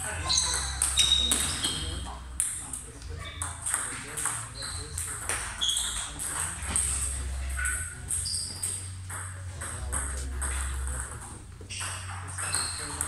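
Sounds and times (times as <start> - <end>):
table tennis balls clicking: 0.0 - 13.0
short high squeaks: 0.2 - 2.0, 4.6 - 6.1, 7.5 - 9.0, 11.7 - 13.0.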